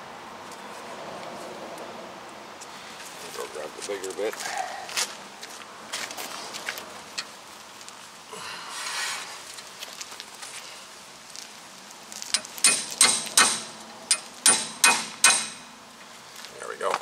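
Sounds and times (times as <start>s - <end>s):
hammer blows on steel: 12.4s - 15.7s.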